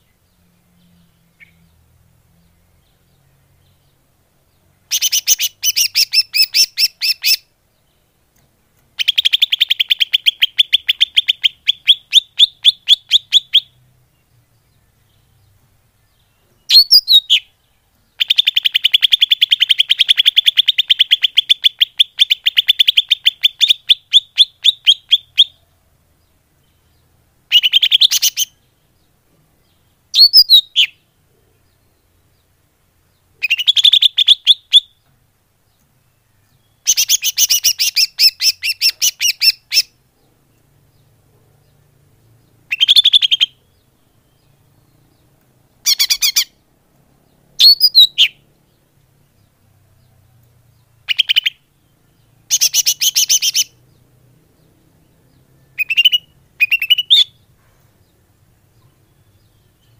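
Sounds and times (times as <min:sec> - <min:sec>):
bird chattering: 0:04.9 - 0:07.5, 0:09.0 - 0:13.8, 0:18.2 - 0:25.6, 0:27.5 - 0:28.6, 0:33.4 - 0:34.9, 0:36.8 - 0:40.0, 0:42.6 - 0:43.9, 0:45.8 - 0:46.6, 0:47.6 - 0:48.4, 0:51.0 - 0:51.7, 0:52.5 - 0:53.8, 0:55.7 - 0:57.5.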